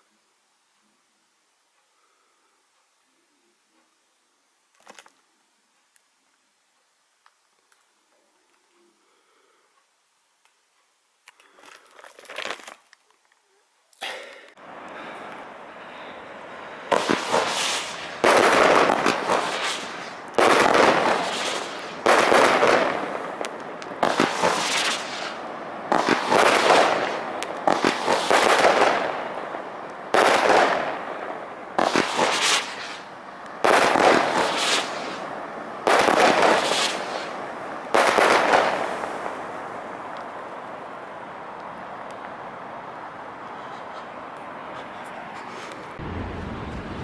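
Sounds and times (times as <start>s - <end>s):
firework cake bangs: 16.9s - 29.1s, 31.8s - 35.2s, 35.8s - 39.0s.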